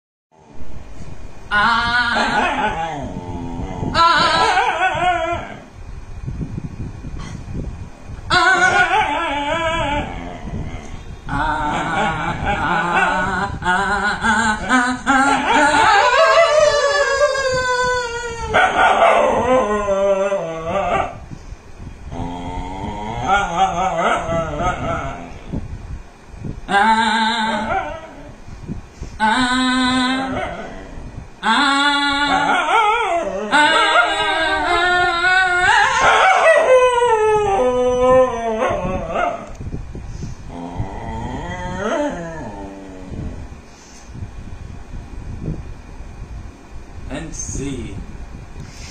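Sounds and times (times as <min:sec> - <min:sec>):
dog howling: 0:01.5 - 0:05.7, 0:08.3 - 0:21.2, 0:22.1 - 0:25.4, 0:26.7 - 0:28.4, 0:29.2 - 0:39.5, 0:40.5 - 0:43.5
man singing with wavering voice: 0:11.3 - 0:16.4, 0:29.2 - 0:32.8.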